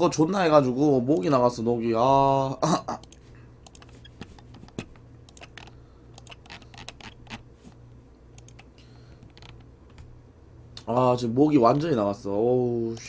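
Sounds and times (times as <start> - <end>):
steady low hum: 0.0 - 13.0
keyboard typing clicks: 3.0 - 7.4, 8.4 - 10.1.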